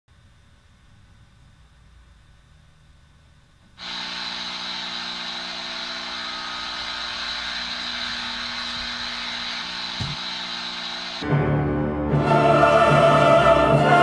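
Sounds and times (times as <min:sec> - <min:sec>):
alarm hissing drone: 0:03.8 - 0:11.3.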